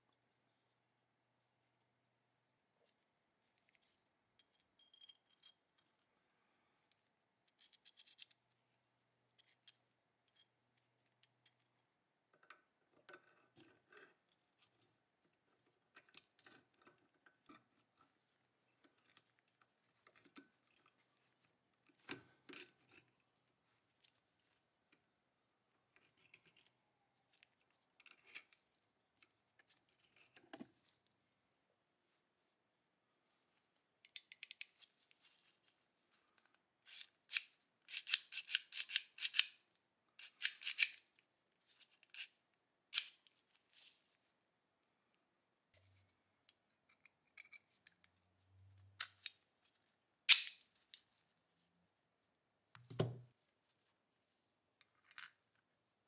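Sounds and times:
pistol parts clicking: 37.3 - 39.6, 40.2 - 41.1, 42.9 - 43.3, 50.3 - 50.6.

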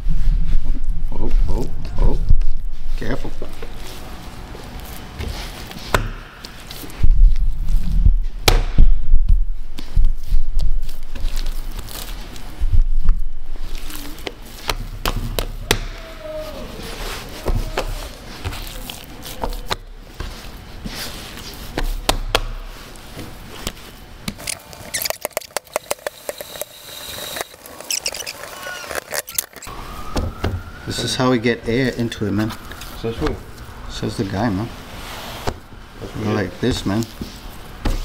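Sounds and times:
dough thuds and slaps: 8.2 - 11.2, 14.6 - 16.0, 21.7 - 22.7.

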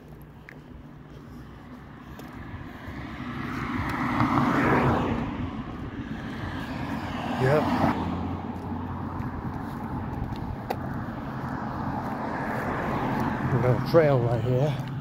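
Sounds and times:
car driving past: 2.8 - 10.1.

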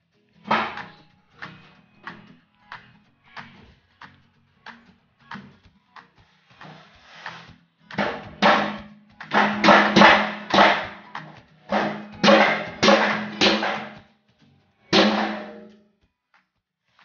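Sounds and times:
blows ringing on steel drum: 9.4 - 11.0, 11.7 - 14.0, 15.0 - 15.8.

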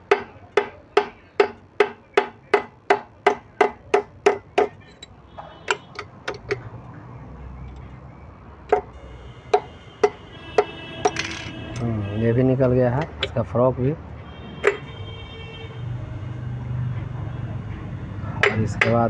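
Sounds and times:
hammer striking steel: 0.0 - 5.1, 8.7 - 11.3, 18.4 - 19.0.

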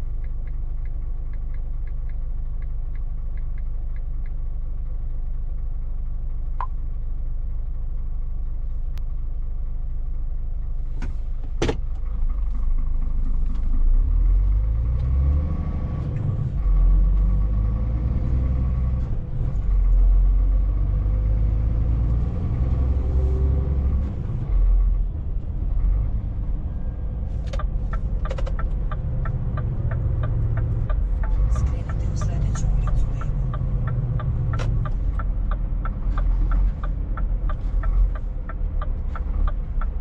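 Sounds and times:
truck engine revving: 13.8 - 40.0
regular ticking: 27.4 - 40.0.

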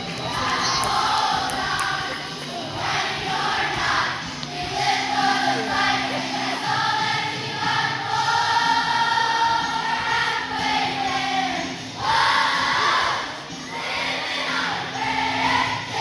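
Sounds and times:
children's choir singing: 0.0 - 16.0.

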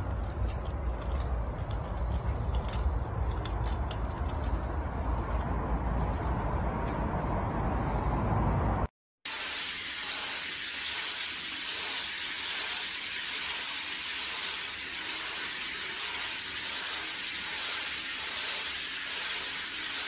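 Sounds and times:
shower spraying water: 9.2 - 20.0.

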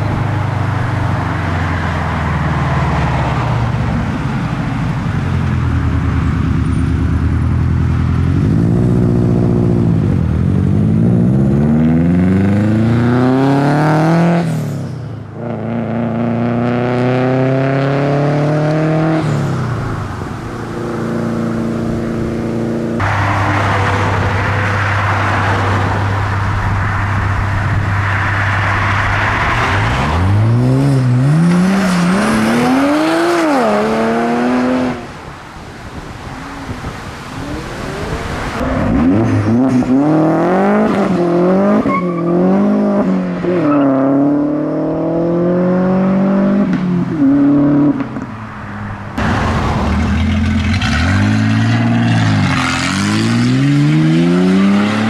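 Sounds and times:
car engines revving through gears: 8.1 - 14.8, 15.4 - 19.6, 28.2 - 35.3, 36.2 - 48.3, 49.1 - 55.0.

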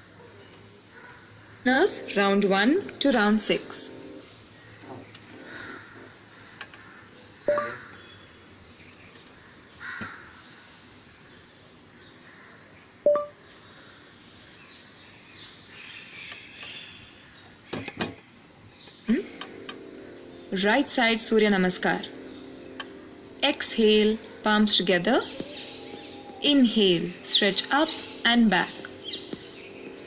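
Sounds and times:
crow cawing: 0.9 - 1.7, 4.6 - 8.1, 9.8 - 10.4.

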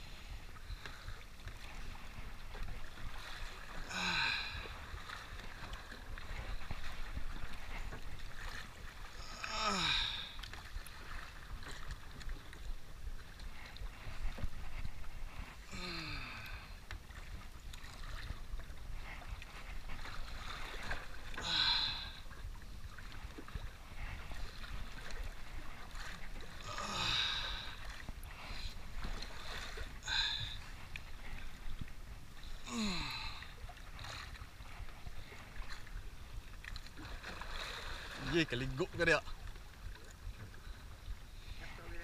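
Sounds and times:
sea and wind wash: 0.0 - 42.0
person breathing hard and grunting: 3.9 - 4.7, 9.2 - 10.4, 15.7 - 16.8, 21.4 - 22.2, 26.6 - 27.8, 32.6 - 33.5
heavy exhale: 21.4 - 22.2.

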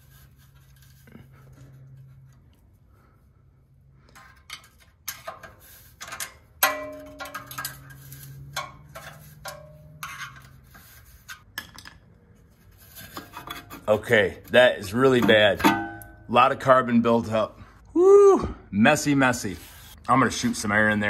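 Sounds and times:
screwdriver scraping metal: 4.2 - 11.5.

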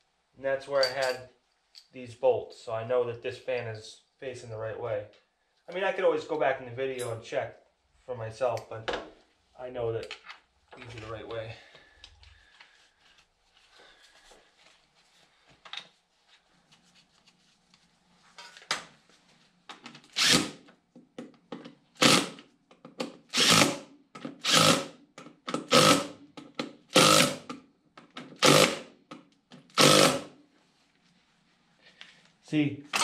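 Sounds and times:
power drill bursts: 20.2 - 20.6, 22.0 - 22.4, 23.3 - 23.8, 24.4 - 24.9, 25.6 - 26.1, 26.9 - 27.5, 28.4 - 28.9, 29.7 - 30.3.

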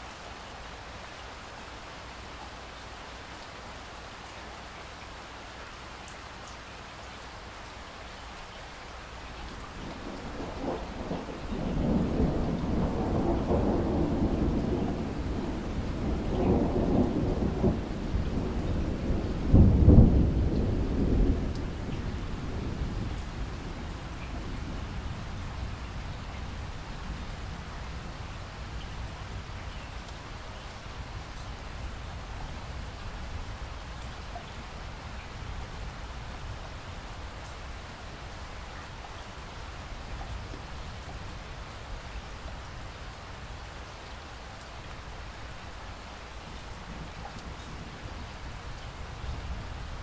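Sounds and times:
steady rain falling: 0.0 - 50.0
thunder rolling: 9.8 - 24.9.

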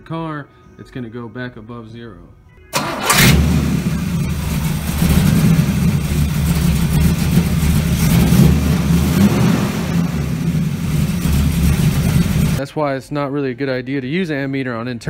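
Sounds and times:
car engine idling: 2.8 - 12.6.

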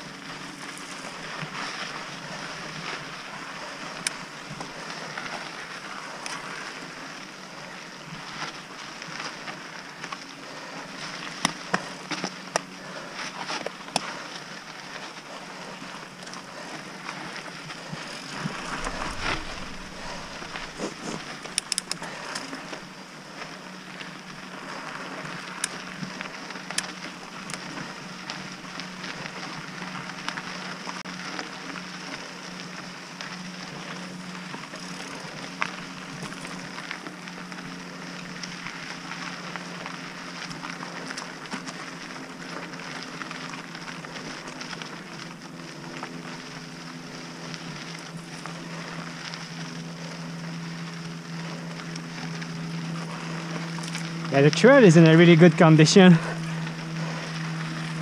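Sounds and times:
bike tyres crunching on dirt: 0.0 - 58.0
bike clicks and rattles: 0.4 - 7.2, 8.0 - 32.2, 33.2 - 46.6, 51.4 - 55.0
wind gust on microphone: 18.4 - 21.6.

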